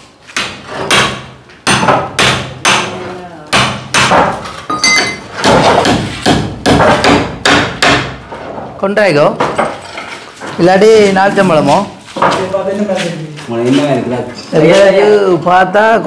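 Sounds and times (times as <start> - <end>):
hammer striking wood: 0.3 - 8.6.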